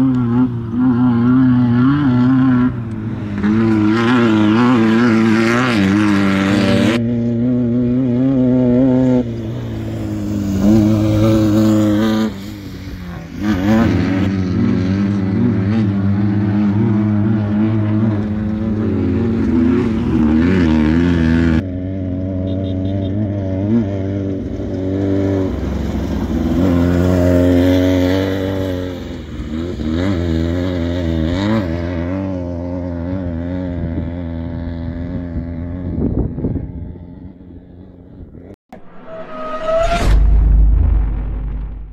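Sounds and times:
race car engines revving: 0.0s - 41.9s.

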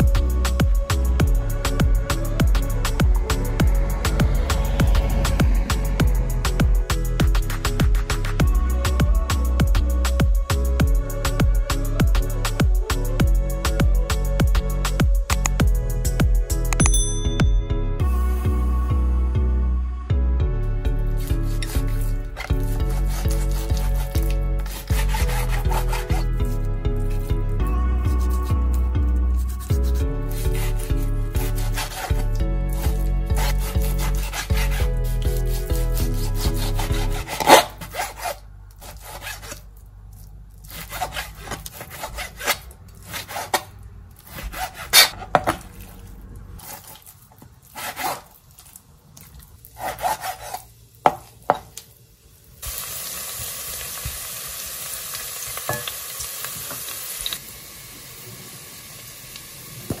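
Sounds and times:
low background music: 0.0s - 37.8s
knife sawing through meat: 21.1s - 27.3s, 28.1s - 39.7s, 40.6s - 45.4s, 47.6s - 48.4s, 49.8s - 50.7s
steady hiss: 50.8s - 60.0s.

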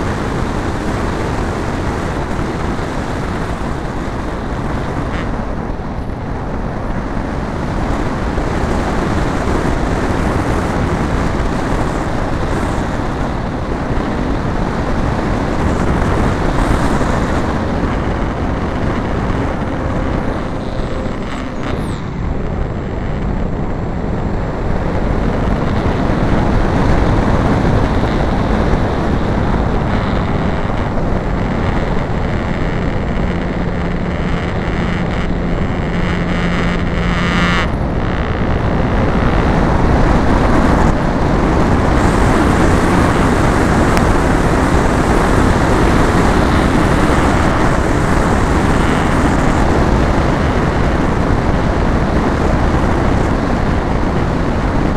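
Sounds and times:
model airplane airflow and propeller: 0.0s - 54.9s.

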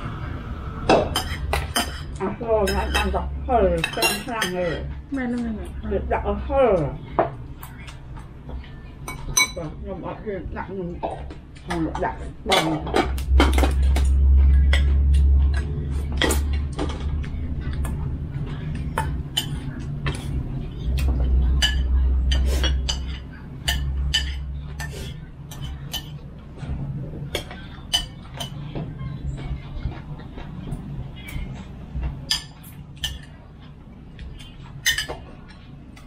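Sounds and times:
steady low hum: 0.0s - 36.0s
spoons clinking on plates: 0.9s - 4.8s, 8.6s - 9.7s, 18.8s - 26.2s, 27.3s - 28.8s, 32.2s - 33.4s, 34.2s - 36.0s
deep rumble: 13.0s - 25.5s.

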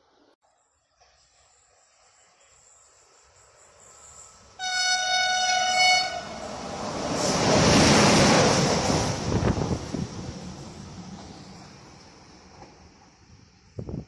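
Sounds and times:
locomotive horn chord: 4.6s - 6.5s.

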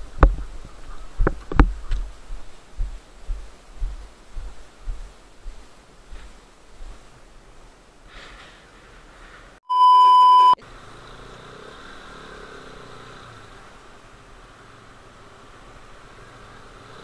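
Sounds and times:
faint wind: 0.0s - 17.0s
road noise: 0.0s - 17.0s
censor bleep: 9.6s - 10.6s.

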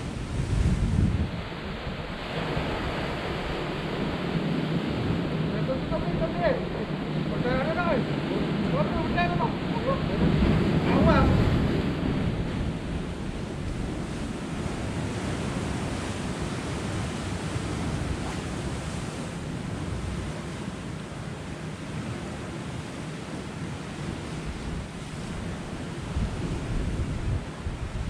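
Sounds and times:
sea surf on rocks: 0.0s - 28.0s
wind buffeting microphone: 0.0s - 28.0s.

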